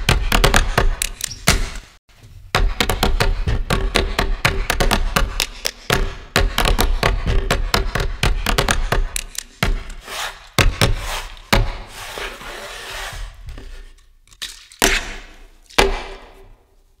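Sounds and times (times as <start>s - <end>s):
sharp clicks and knocks: 2.5s - 10.0s.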